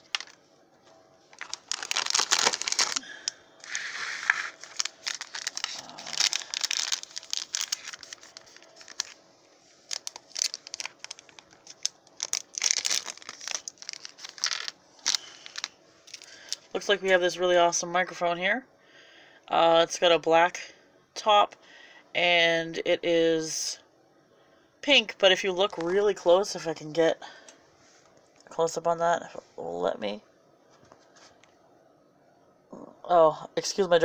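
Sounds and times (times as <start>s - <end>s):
foil wrapper crinkling and tearing: 0.0s - 0.4s, 1.3s - 9.2s, 9.8s - 16.7s.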